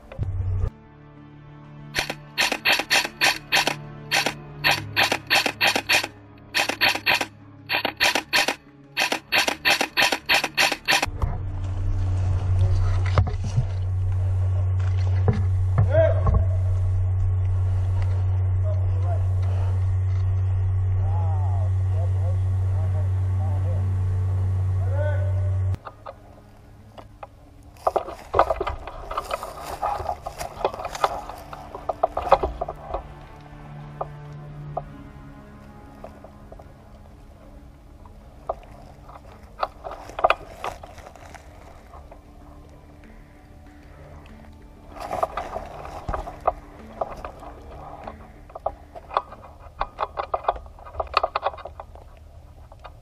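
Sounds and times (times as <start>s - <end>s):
airsoft rifle shots: 2.0s - 11.1s
steady low hum: 10.9s - 27.7s
climbing gear clicks and knocks: 45.0s - 53.0s.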